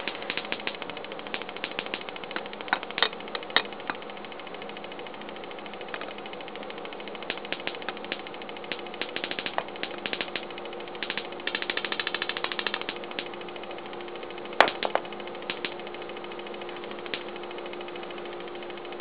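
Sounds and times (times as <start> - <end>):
electric sparks snapping: 0.0 - 3.3, 7.2 - 13.3.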